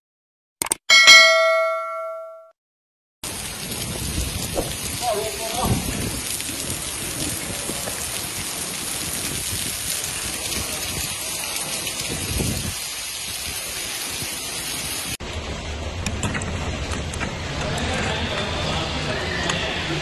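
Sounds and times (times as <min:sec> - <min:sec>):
rain and hail on pavement: 0:03.2 - 0:18.5.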